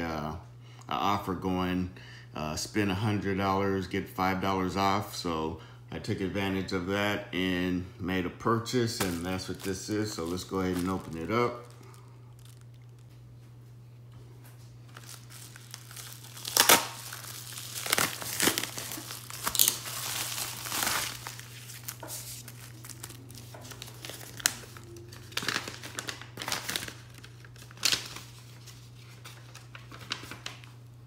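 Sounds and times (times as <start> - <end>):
steady low hum: 0.0 - 31.0
plastic mailer being torn: 8.9 - 13.1, 14.9 - 30.7
packaging crinkling and rustling: 8.9 - 13.5, 14.6 - 30.9.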